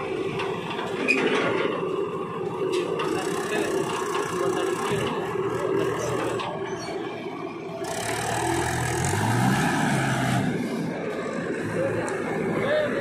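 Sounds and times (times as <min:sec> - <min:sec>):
backhoe loader engine: 0:00.0 - 0:13.0
diesel tractor engine revving: 0:00.0 - 0:13.0.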